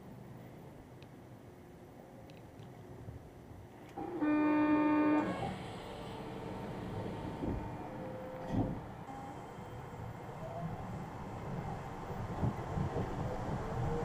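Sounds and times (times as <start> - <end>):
train running noise: 2.6 - 14.0
train horn toot: 4.0 - 5.6
thump: 8.4 - 8.8.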